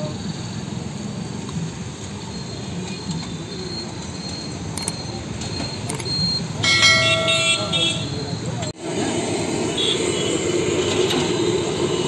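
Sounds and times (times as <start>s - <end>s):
horn sounding: 6.6s - 8.4s.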